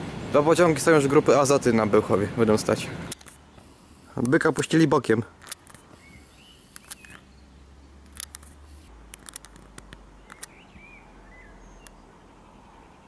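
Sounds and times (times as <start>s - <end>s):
sharp clicks: 3.1s - 4.7s, 5.3s - 7.3s, 8.0s - 10.6s
bird chirps: 5.6s - 8.0s, 10.2s - 13.0s.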